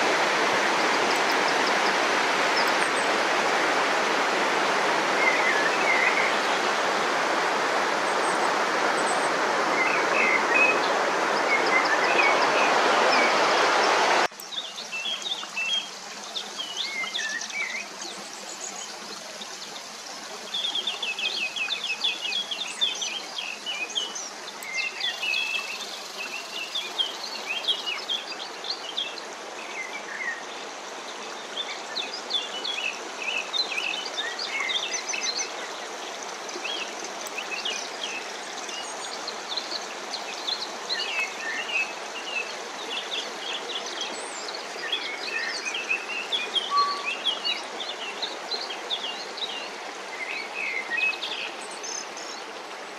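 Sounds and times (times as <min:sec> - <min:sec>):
loud rushing water: 0:00.0 - 0:52.9
birds singing: 0:05.2 - 0:06.6, 0:09.2 - 0:52.5
small birds chirping: 0:31.2 - 0:52.4.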